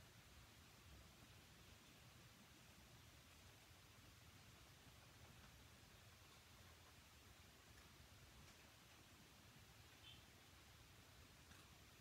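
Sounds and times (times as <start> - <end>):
faint high-pitched chirp: 9.9 - 10.4.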